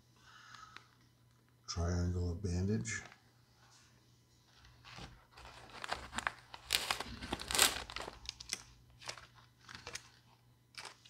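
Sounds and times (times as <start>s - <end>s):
plastic packaging crinkling: 4.8s - 11.0s.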